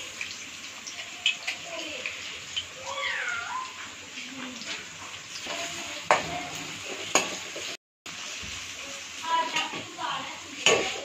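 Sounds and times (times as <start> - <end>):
onions sizzling in oil: 0.0 - 11.0
spoon knocking against pan: 6.1 - 6.4, 7.1 - 7.4.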